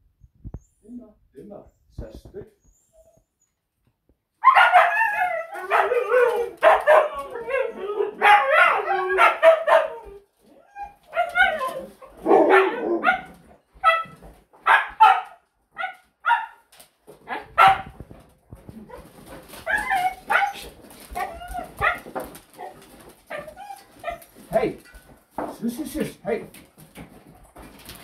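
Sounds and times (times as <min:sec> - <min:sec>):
huskies barking and yipping: 0:04.4 - 0:16.6, 0:17.2 - 0:18.0, 0:18.8 - 0:25.1.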